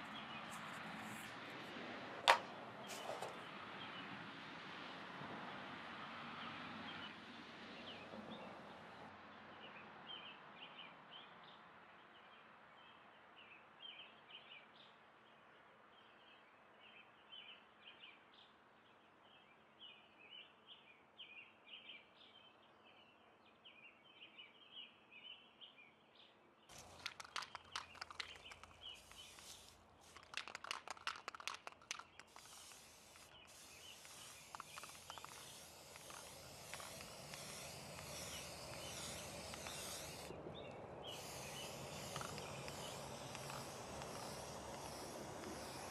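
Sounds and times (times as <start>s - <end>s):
aerosol spray can hissing: 26.7s - 45.9s
scraper dragging over dried paint: 26.7s - 45.9s.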